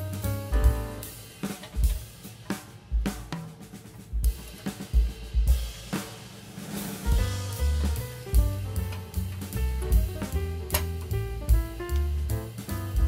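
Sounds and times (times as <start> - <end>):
drum-led background music: 0.0 - 13.0.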